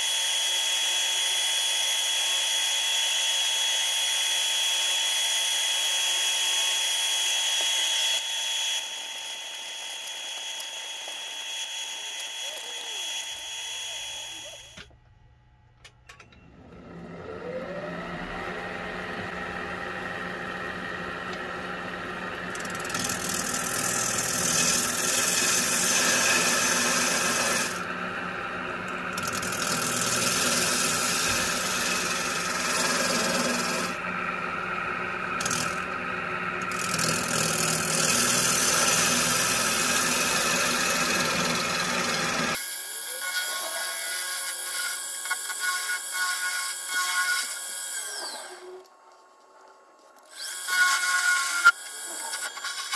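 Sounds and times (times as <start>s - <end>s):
lathe motor whining: 3.7s - 14.9s, 16.2s - 43.4s
gouge cutting wood: 16.8s - 48.7s, 50.3s - 52.9s.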